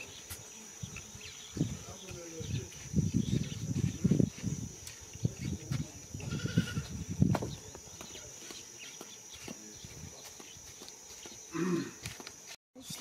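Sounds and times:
farm animal bleating: 6.2s - 6.9s.

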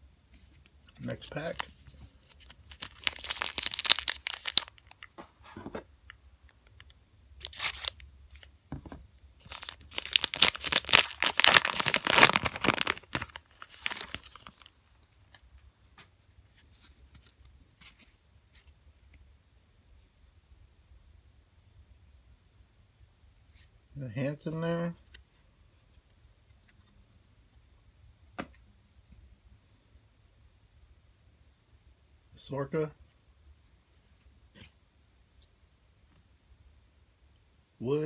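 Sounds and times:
foil wrapper tearing and crinkling: 2.4s - 5.1s, 7.4s - 8.0s, 9.4s - 14.8s.

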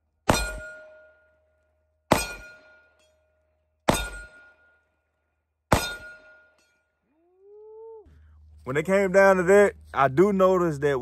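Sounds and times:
steel plate target clanging: 0.3s - 1.3s, 2.1s - 3.2s, 3.9s - 4.9s, 5.7s - 6.9s
pistol shots: 2.1s - 2.8s, 3.9s - 4.6s, 5.7s - 6.4s.

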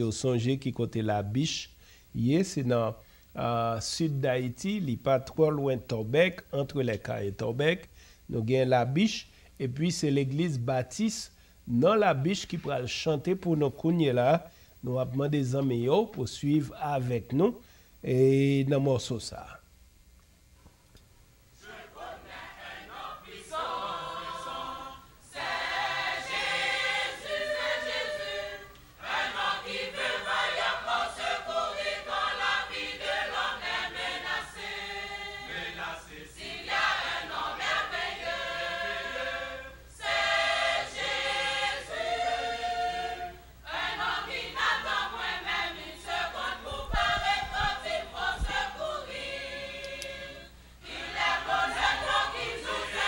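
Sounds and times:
church choir singing: 21.6s - 53.0s.

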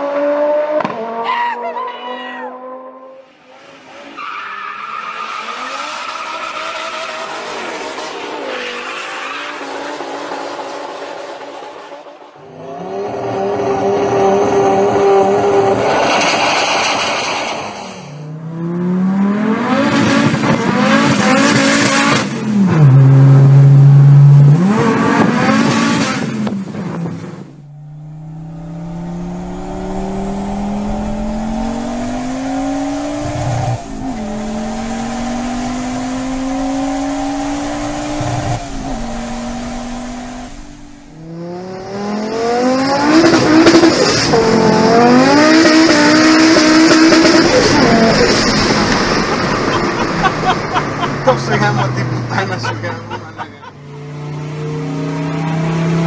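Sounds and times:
car engine revving: 3.8s - 56.0s
car accelerating through gears: 18.2s - 56.0s.

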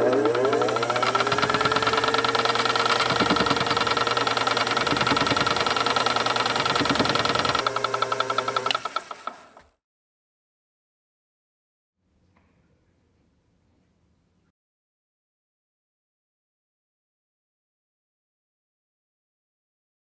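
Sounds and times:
filing machine reciprocating: 0.0s - 9.8s
motor whine: 0.0s - 9.8s.

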